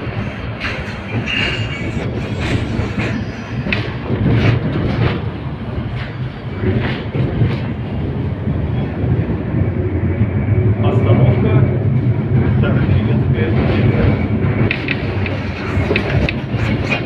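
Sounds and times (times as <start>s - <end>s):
wheels clacking over track joints: 0.0s - 7.7s, 13.5s - 17.0s
tram rumbling on rails: 0.0s - 17.0s.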